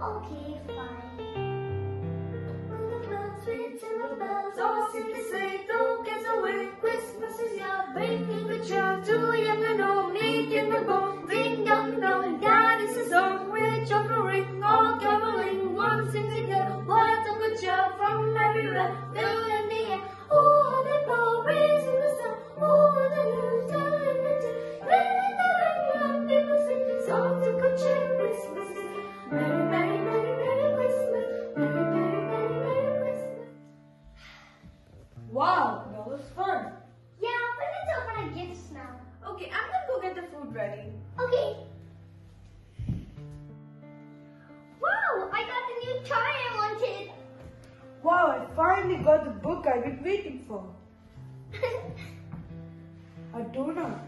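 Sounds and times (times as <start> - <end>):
children singing: 2.8 - 33.6.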